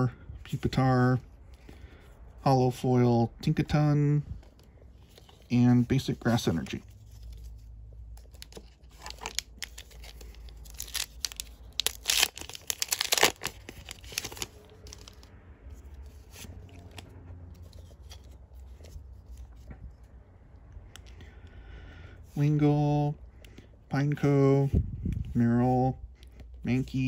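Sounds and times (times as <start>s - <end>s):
handling of trading cards: 3.5s - 21.6s
foil wrapper ripping: 9.0s - 15.2s.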